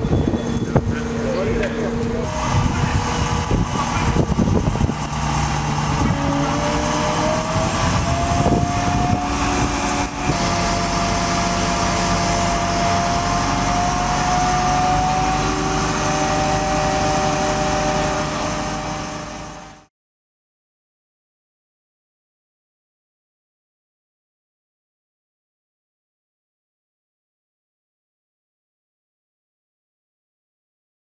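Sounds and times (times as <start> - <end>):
crane diesel engine and hydraulics: 0.0 - 19.9
rising whine: 0.0 - 19.9.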